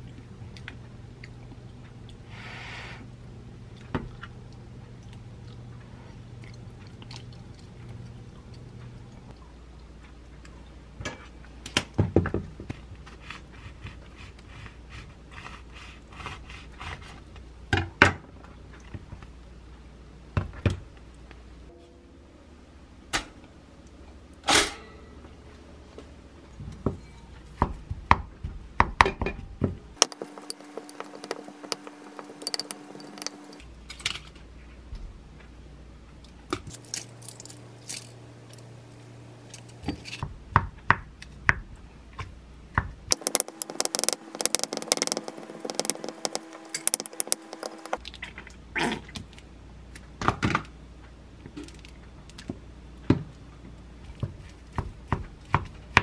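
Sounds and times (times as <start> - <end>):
wooden spoon tapping glass bowl: 30.0 - 33.6, 43.1 - 48.0.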